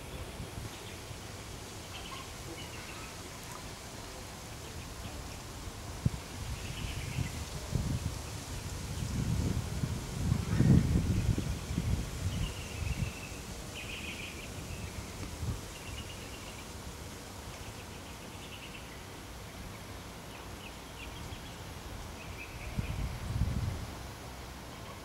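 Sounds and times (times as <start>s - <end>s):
wind buffeting microphone: 5.7s - 16.1s, 21.9s - 24.1s.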